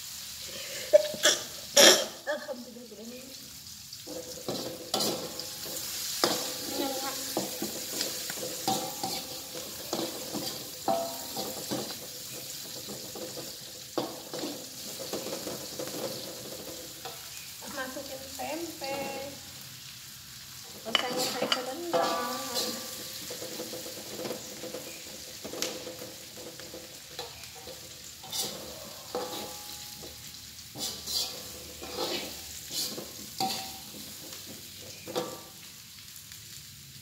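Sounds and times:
food sizzling in hot oil: 0.0s - 37.0s
spatula scraping and clacking on wok: 4.0s - 18.0s, 20.6s - 35.8s.

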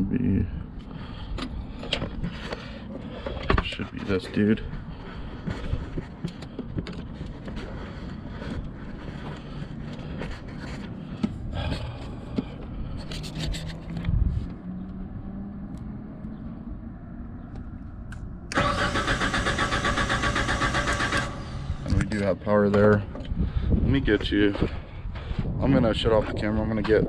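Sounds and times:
engine cranking on starter: 18.5s - 22.0s.

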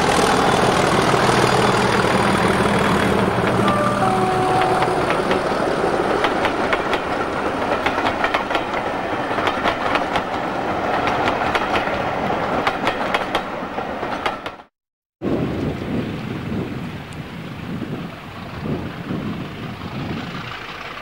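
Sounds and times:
train rumble: 0.0s - 14.7s, 17.8s - 21.0s
train wheels clickety-clack: 4.5s - 14.7s.

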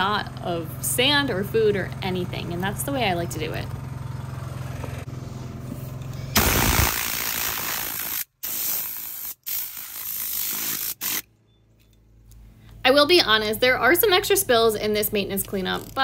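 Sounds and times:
compressed air hissing: 6.4s - 11.2s.

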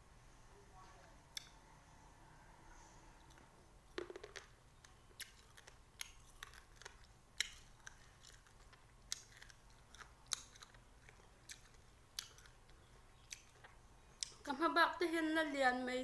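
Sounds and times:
wet chewing clicks and smacks: 3.3s - 14.5s.

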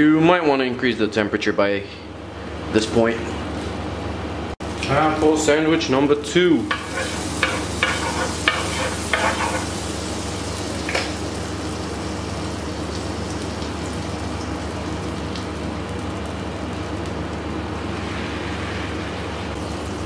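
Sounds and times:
butter sizzling on grill: 6.6s - 18.9s
metal tongs scraping plate: 6.7s - 9.7s.

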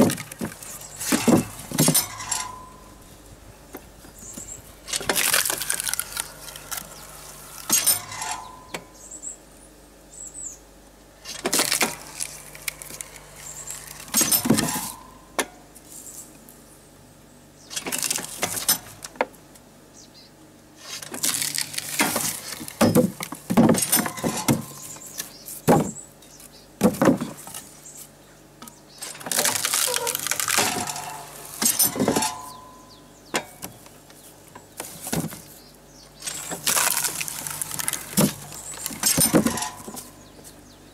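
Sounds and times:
knocks of logs being handled: 0.0s - 2.7s, 21.0s - 27.8s, 33.3s - 35.5s, 36.2s - 40.6s
logs cracking and splitting: 4.1s - 7.8s, 11.2s - 15.0s, 20.9s - 25.8s, 29.0s - 32.3s, 36.2s - 40.1s.

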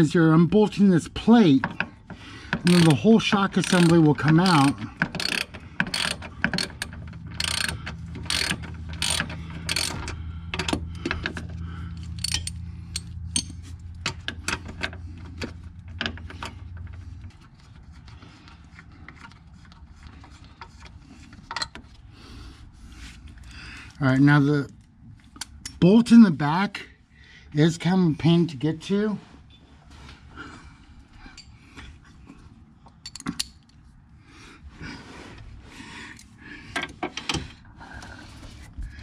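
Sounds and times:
steady low hum: 0.0s - 39.0s
hand ratchet clicking: 2.5s - 11.4s, 12.0s - 14.3s.

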